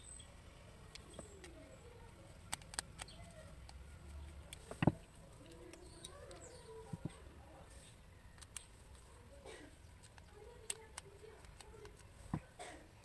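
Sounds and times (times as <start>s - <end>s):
plastic plug clicks and taps: 10.0s - 12.5s.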